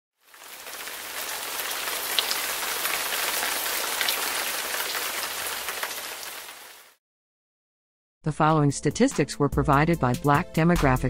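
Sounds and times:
rain falling: 0.2 - 7.0.

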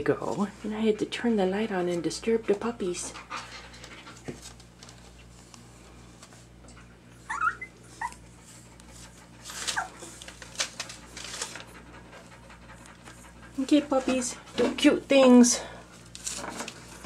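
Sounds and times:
faint scuffling clicks: 3.8 - 6.4
puppies whimpering: 7.1 - 10.2.

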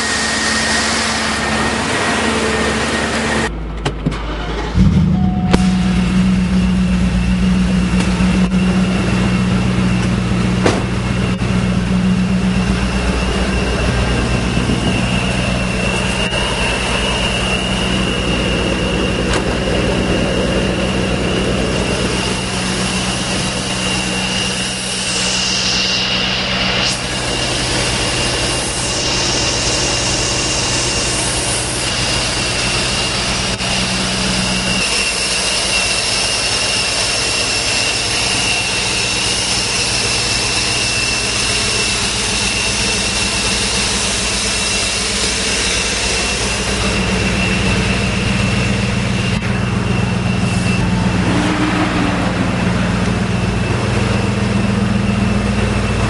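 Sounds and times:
car engine idling: 0.0 - 56.0
high-pitched supercharger whine: 0.0 - 56.0.

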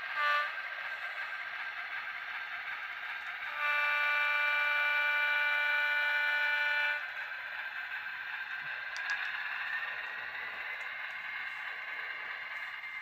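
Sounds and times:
model locomotive horn blast: 0.0 - 1.2, 3.3 - 7.2
model freight cars rolling: 0.0 - 13.0.

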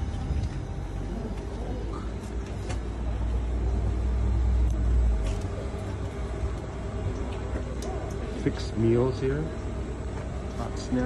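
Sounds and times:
deep low rumble: 0.0 - 7.2.

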